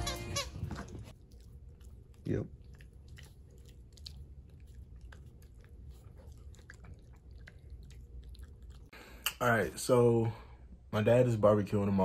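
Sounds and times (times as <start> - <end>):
puppy licking with wet clicks: 1.1 - 9.0.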